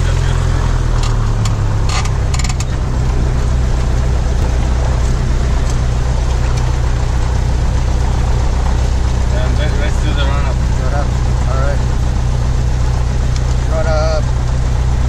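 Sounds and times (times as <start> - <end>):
airplane engine droning: 0.0 - 15.0.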